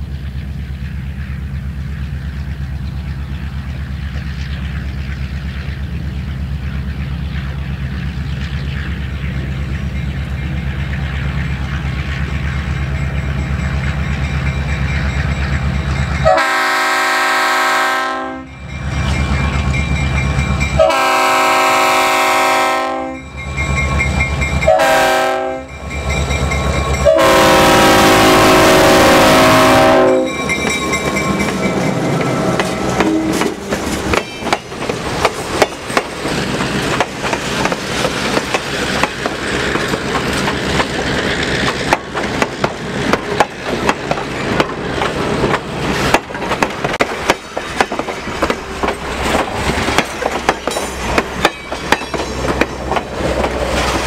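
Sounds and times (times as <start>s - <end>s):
train wheels clicking over rail joints: 0.0s - 16.4s, 30.3s - 54.0s
diesel locomotive engine rumbling: 0.0s - 54.0s
multi-note air horn: 16.3s - 18.5s, 20.8s - 23.2s, 24.7s - 25.7s, 27.1s - 30.3s.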